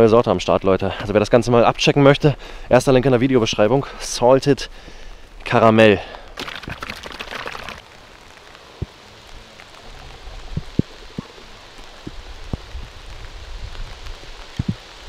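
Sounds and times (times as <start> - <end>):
light rain pattering: 0.0 - 15.0
rustle: 0.1 - 15.0.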